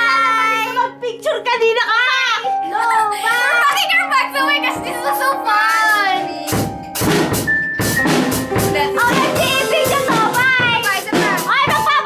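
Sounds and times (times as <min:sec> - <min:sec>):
girl's voice: 0:00.0 - 0:06.6, 0:08.7 - 0:12.0
music with drum beat: 0:04.8 - 0:12.0.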